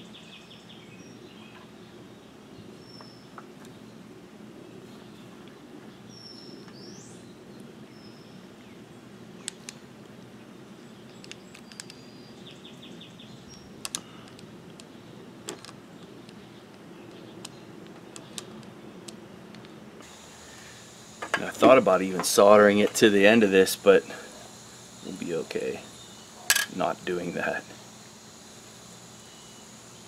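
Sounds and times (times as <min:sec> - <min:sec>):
steady background hum: 0:00.0 - 0:30.0
wire crimper clicking: 0:13.8 - 0:14.9
bird chirping: 0:21.8 - 0:26.5, 0:29.0 - 0:30.0.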